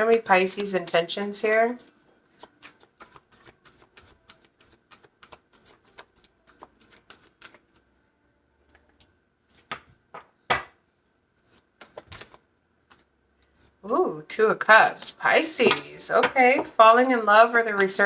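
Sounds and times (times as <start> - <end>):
cards shuffling: 1.8 - 7.8, 9.5 - 10.3, 11.4 - 13.7
cards tapping: 9.6 - 10.8.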